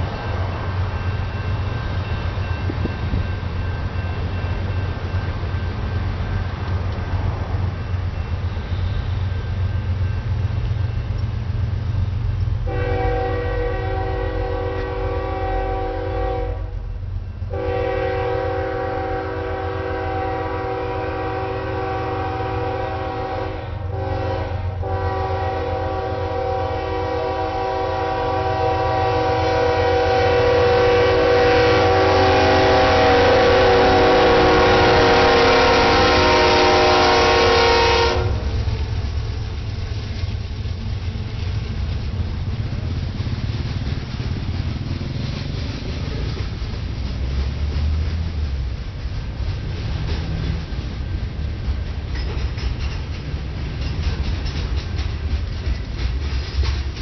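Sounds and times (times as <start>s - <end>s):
train rumbling: 0.0s - 57.0s
locomotive air horn blasts: 12.6s - 16.9s, 17.5s - 38.7s.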